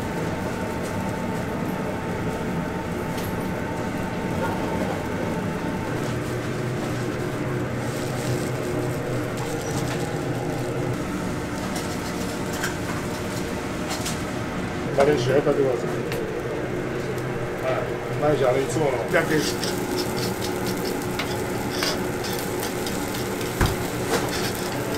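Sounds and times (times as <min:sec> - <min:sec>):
sizzling on a griddle: 0:04.9 - 0:14.4, 0:17.0 - 0:24.9.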